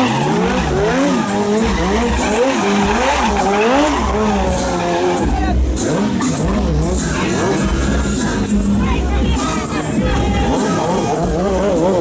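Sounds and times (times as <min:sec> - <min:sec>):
tyre skidding on road: 0:00.0 - 0:08.7
motorcycle engine revving: 0:00.0 - 0:12.0.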